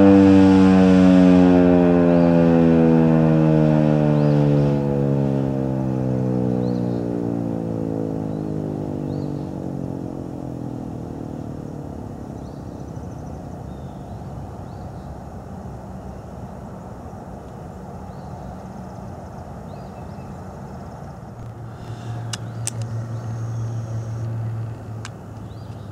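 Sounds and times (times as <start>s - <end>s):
siren winding down: 0.0s - 12.4s
low rumble: 15.2s - 25.6s.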